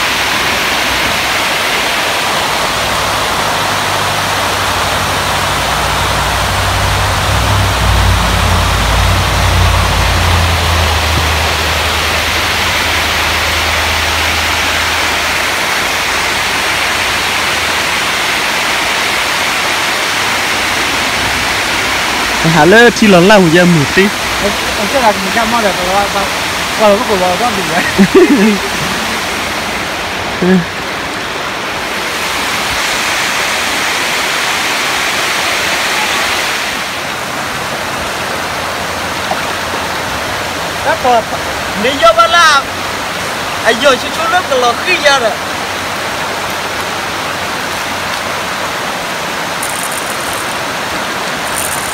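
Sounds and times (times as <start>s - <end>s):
water rushing over spillway: 0.0s - 51.9s
deep rumble: 3.0s - 15.8s.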